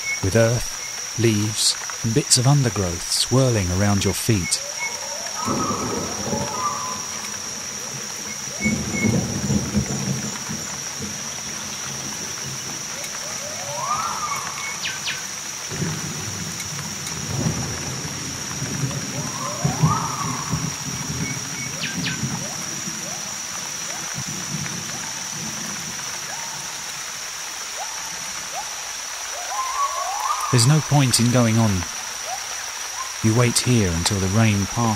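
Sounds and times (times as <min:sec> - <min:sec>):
heavy rain falling: 0:00.0 - 0:34.9
high insect drone: 0:00.0 - 0:34.9
rising-and-falling calls: 0:04.4 - 0:09.3, 0:12.9 - 0:15.6, 0:19.0 - 0:23.3, 0:27.7 - 0:33.3
thunder rumbling: 0:04.4 - 0:26.8.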